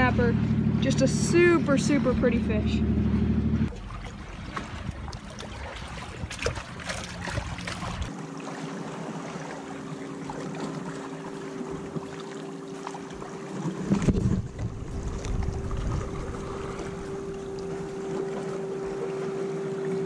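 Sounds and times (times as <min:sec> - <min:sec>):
seawater sloshing among rocks: 0:03.7 - 0:20.0
wind on microphone: 0:13.8 - 0:18.3.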